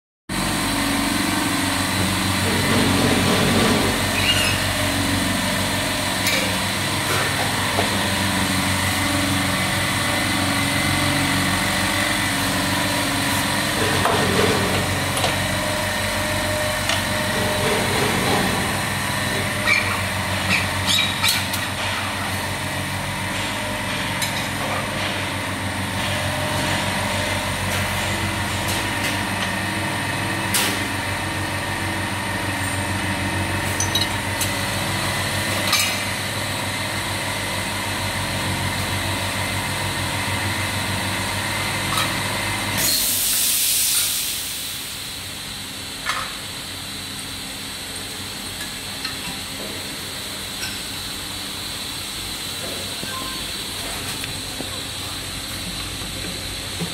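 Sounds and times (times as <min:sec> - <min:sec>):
machinery humming: 0:00.3 - 0:56.9.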